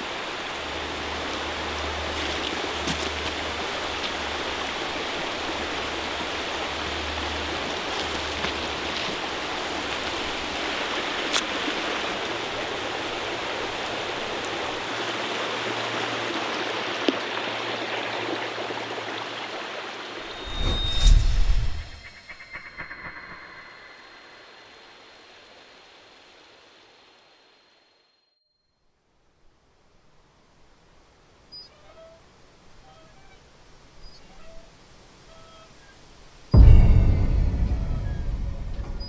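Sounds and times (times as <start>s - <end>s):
creek water running over stones: 0.1s - 20.0s.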